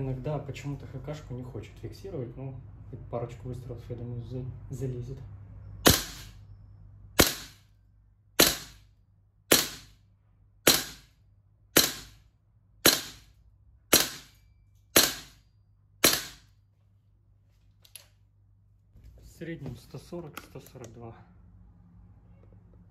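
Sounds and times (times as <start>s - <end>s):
airsoft rifle shots: 5.8s - 6.4s, 7.2s - 7.7s, 8.4s - 8.9s, 9.5s - 10.0s, 10.6s - 11.1s, 11.8s - 12.2s, 12.8s - 13.3s, 13.9s - 15.4s, 16.0s - 16.5s.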